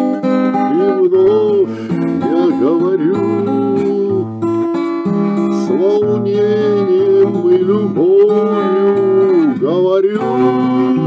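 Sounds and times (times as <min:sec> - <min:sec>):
sliding melody line: 0:00.0 - 0:11.0
strummed acoustic guitar: 0:00.0 - 0:11.0.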